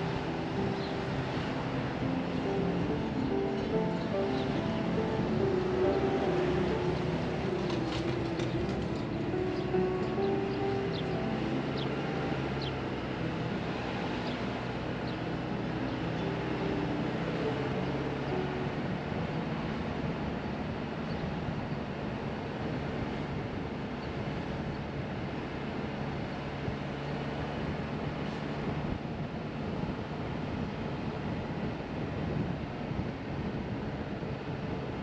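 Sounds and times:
low engine hum: 0.0 - 35.0
tyre and wind noise: 18.8 - 35.0.

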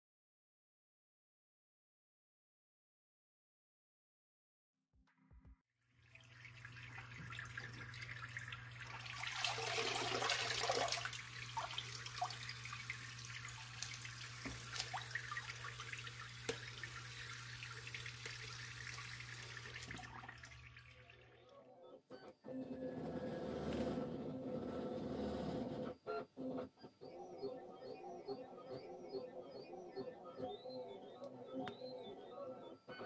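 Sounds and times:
sharp water drips: 6.0 - 21.4
water splashing and bubbling: 6.0 - 21.4.

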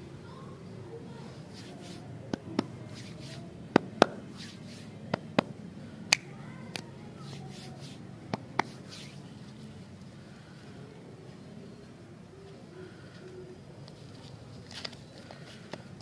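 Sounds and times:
finger snaps: 6.1 - 6.9.

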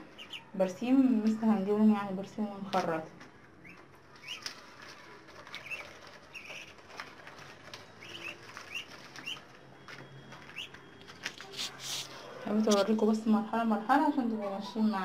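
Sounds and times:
ducklings peeping: 0.0 - 0.6, 3.6 - 12.1.

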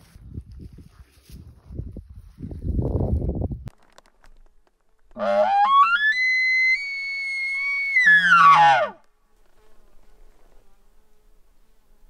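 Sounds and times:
elk call grunt and whistle: 5.2 - 6.8, 7.4 - 9.0.

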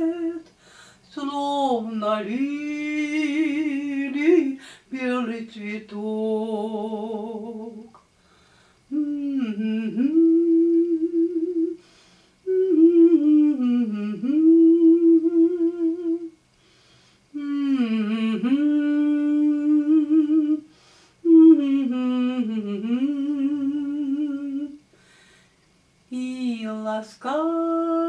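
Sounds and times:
woman humming a melody: 0.0 - 0.5, 8.9 - 11.8, 12.5 - 16.4, 17.3 - 24.8, 26.1 - 28.0.

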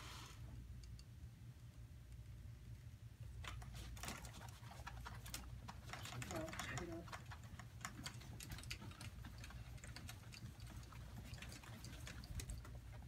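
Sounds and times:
low steady hum: 0.0 - 13.0
small clicks and taps: 3.4 - 13.0.

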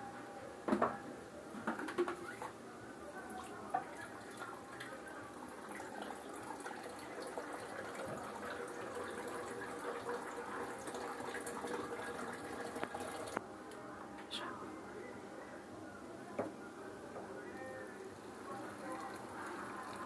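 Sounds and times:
rice simmering in a pot: 3.1 - 13.4, 18.2 - 20.0.

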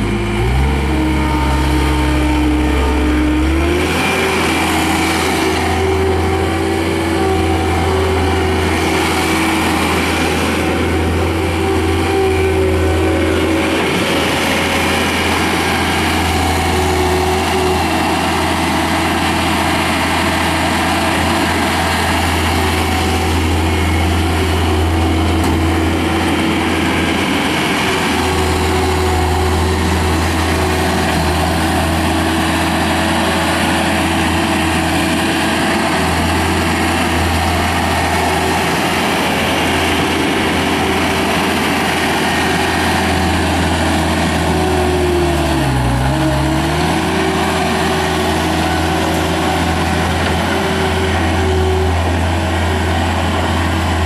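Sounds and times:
diesel engine running: 0.0 - 54.0
steady engine whine: 0.0 - 54.0.

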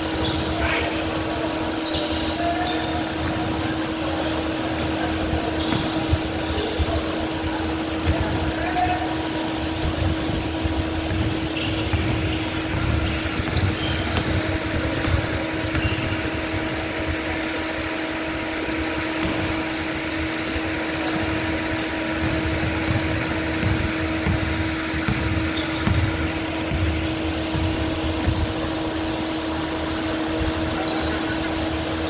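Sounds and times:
steady hum: 0.0 - 32.0
basketball bouncing: 11.0 - 16.7, 19.2 - 19.8, 21.1 - 28.7
shoes squeaking on hardwood floor: 11.1 - 16.6, 19.2 - 29.6.

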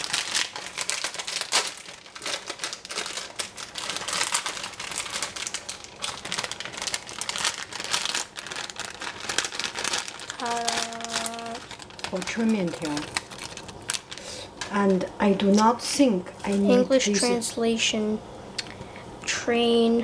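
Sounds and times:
plastic packet crinkling: 0.0 - 15.0.

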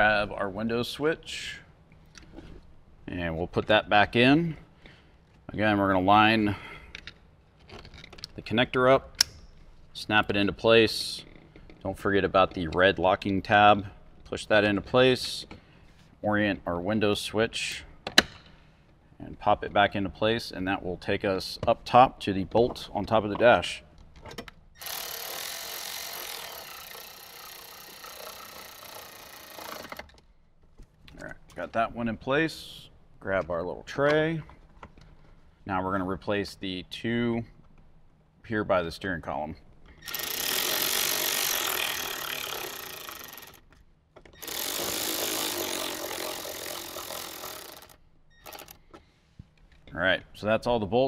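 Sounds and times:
electric screwdriver whirring: 24.8 - 30.1, 40.0 - 43.6, 44.4 - 48.8.

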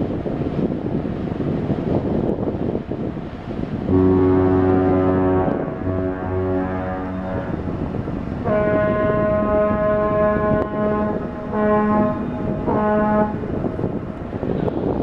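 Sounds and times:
ship horn blasts: 3.7 - 15.0.

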